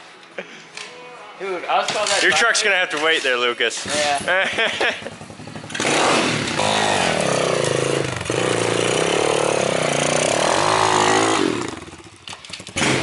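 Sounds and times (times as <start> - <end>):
motorbike engine revving: 3.8 - 13.0.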